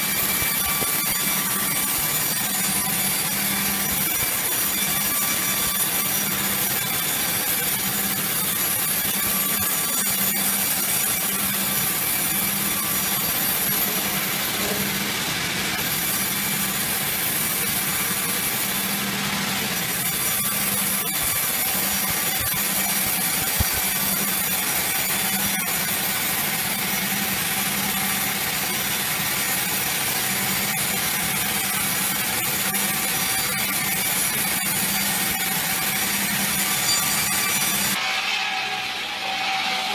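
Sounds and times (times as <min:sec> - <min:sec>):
band saw cutting through log: 0:00.0 - 0:39.9.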